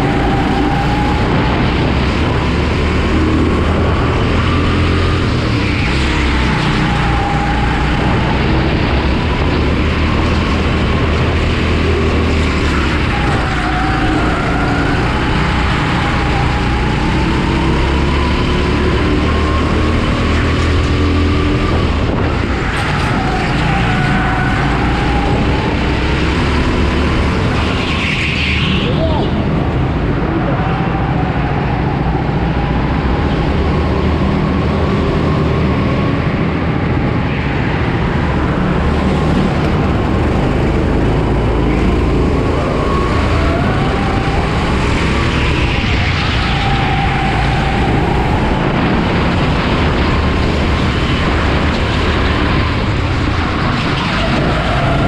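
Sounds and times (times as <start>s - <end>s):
kart engine at race pace: 0.0s - 55.0s.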